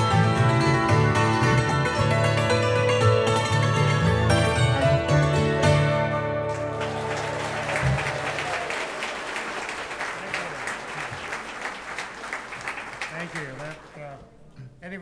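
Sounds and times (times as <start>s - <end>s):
audience applause: 6.5s - 14.2s.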